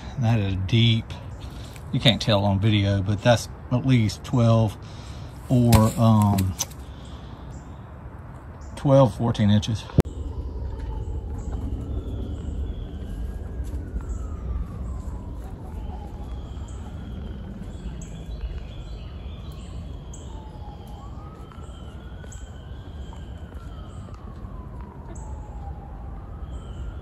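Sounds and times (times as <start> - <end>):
low rumble: 10.0 - 18.6
siren wailing: 10.1 - 18.4, 19.1 - 27.0.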